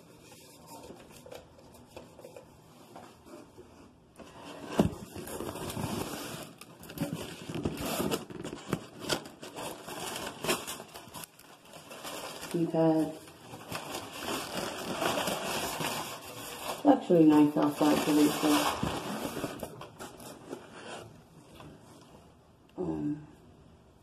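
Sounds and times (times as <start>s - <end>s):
cardboard box rustling and scraping: 17.9s - 21.2s.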